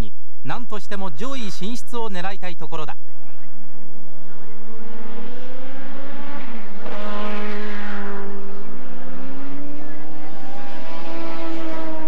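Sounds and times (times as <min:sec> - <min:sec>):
race car passing close: 0:03.0 - 0:12.0
racing car engines accelerating: 0:03.0 - 0:12.0.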